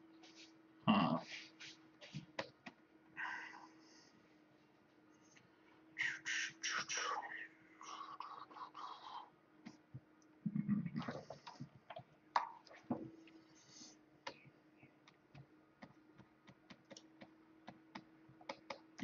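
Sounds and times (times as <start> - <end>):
faint steady hum: 0.0 - 19.0
computer keyboard and mouse clicks: 15.0 - 19.0.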